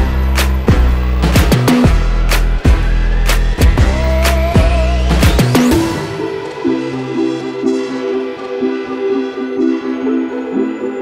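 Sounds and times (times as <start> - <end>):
held bass note: 3.6 - 6.0.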